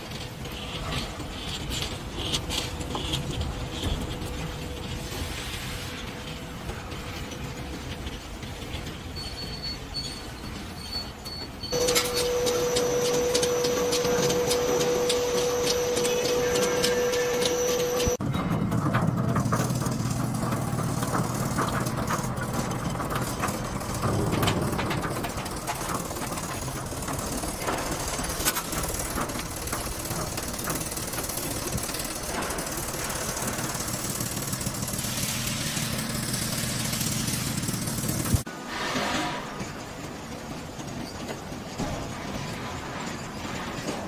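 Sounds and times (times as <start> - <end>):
conveyor rattling and clicking: 0.0 - 38.5, 39.6 - 44.0.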